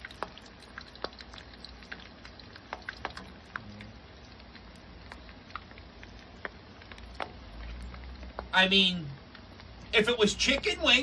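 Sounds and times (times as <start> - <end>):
food deep-frying in oil: 0.0 - 11.0
oil popping and crackling: 0.0 - 11.0.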